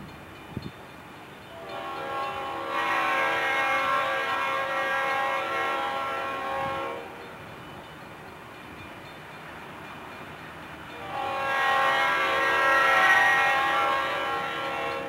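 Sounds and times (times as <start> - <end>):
train rumble: 0.0 - 15.0
train air horn blast: 1.5 - 7.3, 11.0 - 15.0.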